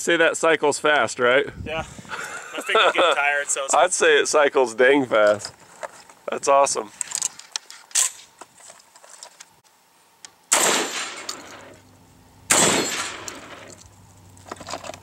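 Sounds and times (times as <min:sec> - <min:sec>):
shotgun shots echoing: 0:10.5 - 0:11.8, 0:12.5 - 0:13.7.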